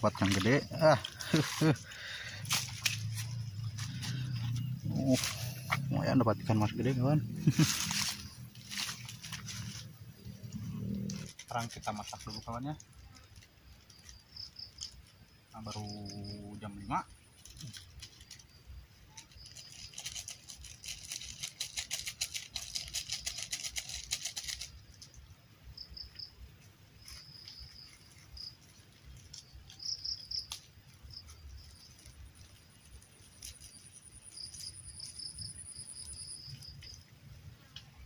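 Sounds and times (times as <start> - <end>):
insect pulsing buzz: 0.0 - 11.7
insect chirps: 0.0 - 38.0.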